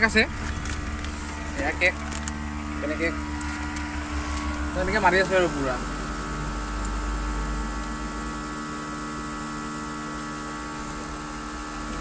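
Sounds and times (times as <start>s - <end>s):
low rumble: 0.0s - 8.4s
hum of held tones: 0.0s - 12.0s.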